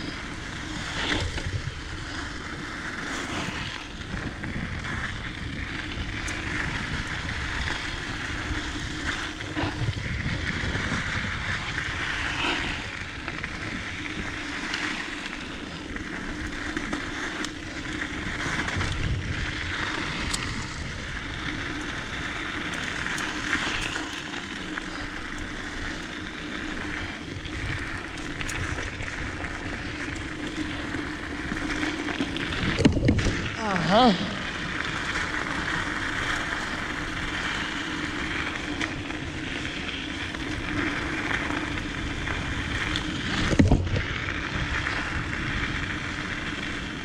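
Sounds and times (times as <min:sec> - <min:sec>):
wind noise on microphone: 0:00.0 - 0:47.0
bike rattles and knocks: 0:26.9 - 0:34.1, 0:38.1 - 0:46.0.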